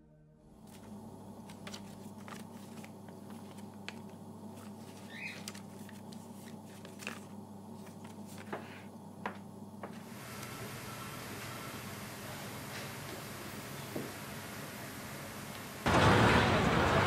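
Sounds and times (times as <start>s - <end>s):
low electrical hum: 0.1s - 17.0s
paper rustling: 0.6s - 10.1s.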